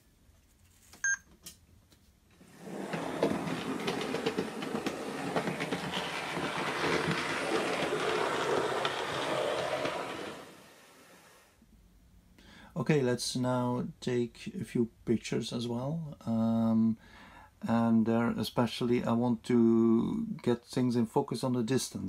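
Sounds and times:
model train running on track: 2.7s - 11.4s.

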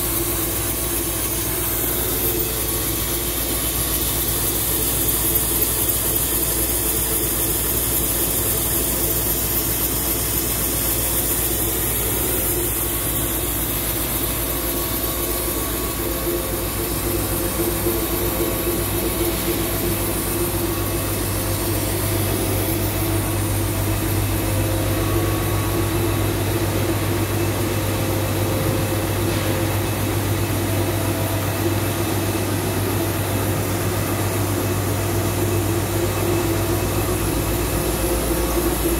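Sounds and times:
lathe machine humming: 0.0s - 38.9s.

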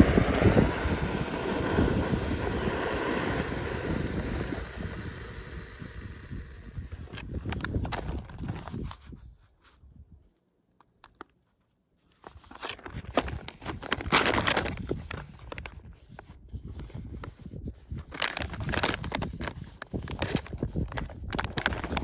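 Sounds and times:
foil pouch crinkling: 12.2s - 15.9s, 18.0s - 22.0s.

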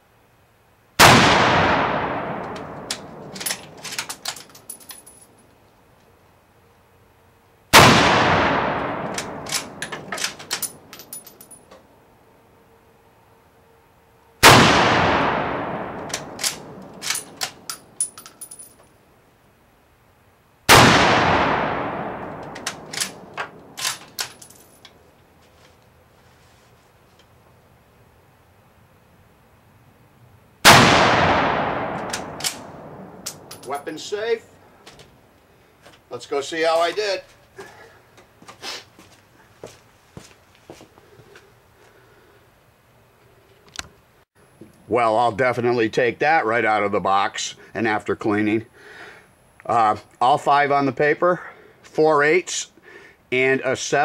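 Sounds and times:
rifle shots echoing: 1.0s - 4.3s, 7.7s - 10.9s, 14.4s - 17.7s, 20.7s - 24.4s, 30.6s - 34.0s
rifle bolt clicking and clacking: 2.4s - 5.2s, 9.0s - 11.6s, 16.0s - 18.6s, 22.3s - 25.0s, 32.0s - 33.8s.

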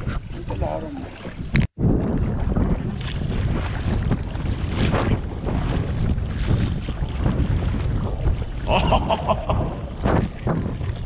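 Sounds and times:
water lapping: 0.0s - 11.0s
wind buffeting microphone: 0.0s - 11.0s.

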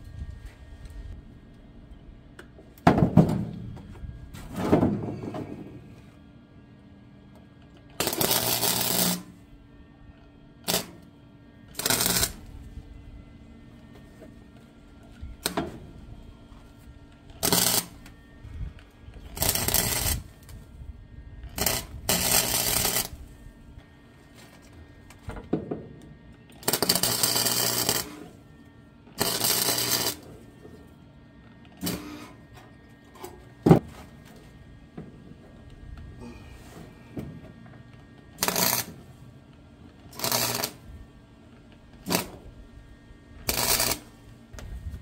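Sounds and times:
welding bursts: 8.0s - 9.4s, 10.6s - 11.0s, 11.7s - 12.5s, 17.3s - 18.0s, 19.3s - 20.5s, 21.5s - 23.2s, 26.6s - 28.3s, 29.2s - 30.2s, 31.8s - 32.2s, 38.4s - 39.0s, 40.1s - 40.9s, 42.0s - 42.4s, 43.4s - 44.2s.

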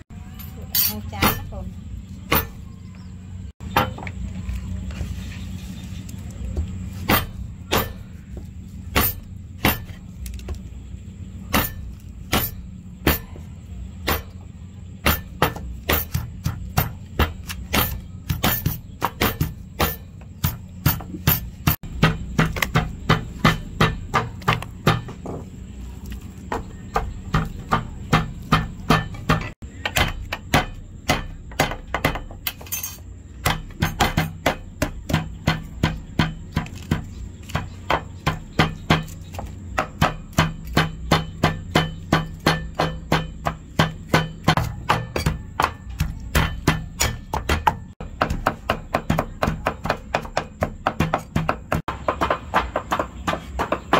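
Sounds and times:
pestle pounding in a mortar: 6.6s - 10.4s, 11.5s - 25.5s, 26.4s - 32.5s, 33.3s - 53.9s
cleaver chopping on wooden board: 7.1s - 8.1s, 15.0s - 25.4s, 33.4s - 53.9s.

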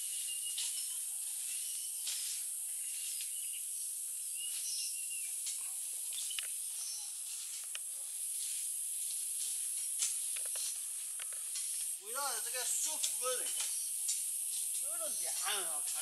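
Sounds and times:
bird chirps and warbles: 0.0s - 7.2s
insects droning: 0.0s - 16.0s.

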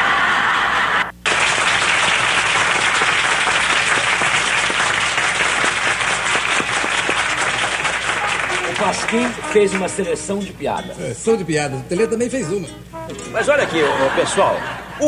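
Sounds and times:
audience applause: 0.0s - 10.0s.

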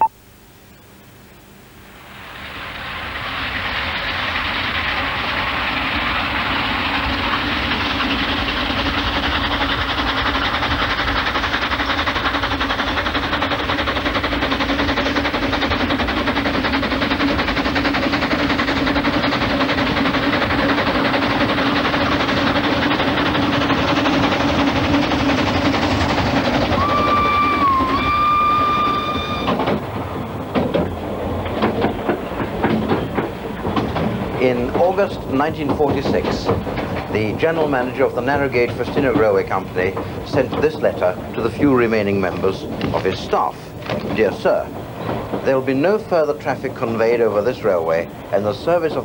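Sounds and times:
steam locomotive running: 1.9s - 49.0s
steam whistle: 26.6s - 29.7s.

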